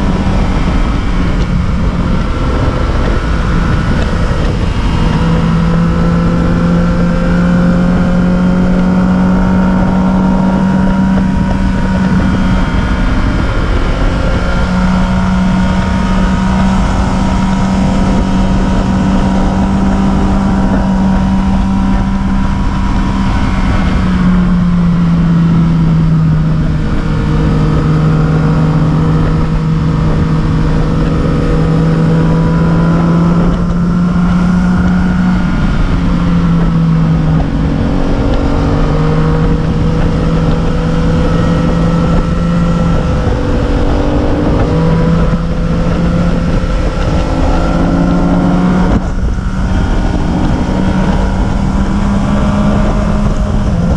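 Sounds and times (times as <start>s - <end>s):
road and wind rush: 0.0s - 53.9s
vehicle engine droning: 0.0s - 53.9s.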